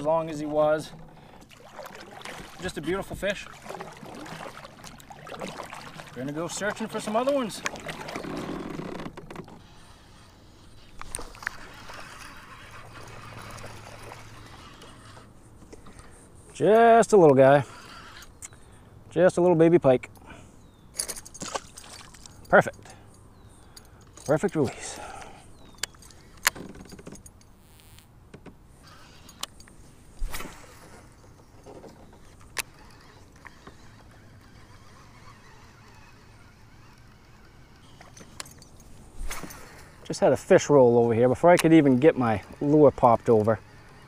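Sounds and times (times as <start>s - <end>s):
water trickling and lapping: 0.0s - 19.0s, 20.1s - 27.5s, 28.8s - 44.0s
fishing reel ticking: 9.6s - 15.3s, 32.4s - 44.0s
fishing tackle clicks and knocks: 20.9s - 27.6s, 37.8s - 39.8s, 41.4s - 42.2s.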